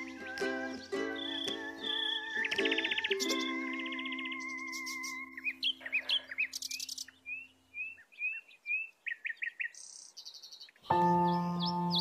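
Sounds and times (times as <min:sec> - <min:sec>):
held musical tone: 0:00.0 - 0:05.4
songbird singing: 0:00.0 - 0:12.0.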